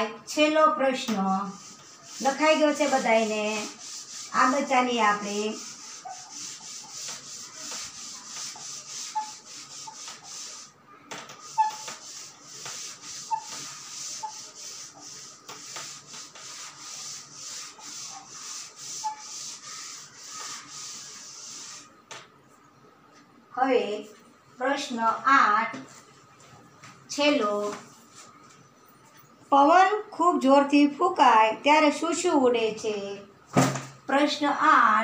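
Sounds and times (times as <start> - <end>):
cloth wiping a blackboard: 1.1 - 22.0.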